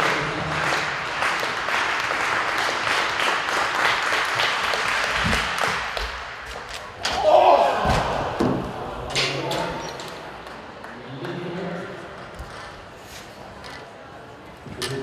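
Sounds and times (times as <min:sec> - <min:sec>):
spectators clapping: 0:00.0 - 0:06.9, 0:10.3 - 0:11.6.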